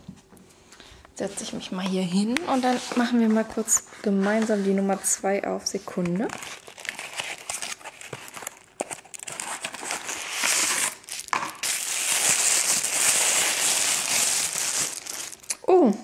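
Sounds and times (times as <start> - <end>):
tissue paper crinkling: 6.2 - 15.5.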